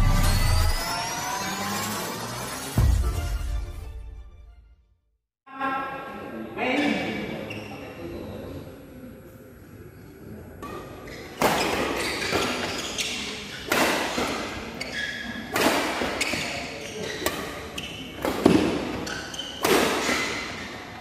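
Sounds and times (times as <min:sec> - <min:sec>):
shoes squeaking on court: 0:10.6 - 0:21.0
rackets hitting shuttlecock: 0:13.6 - 0:14.6, 0:15.4 - 0:16.6, 0:17.2 - 0:20.6.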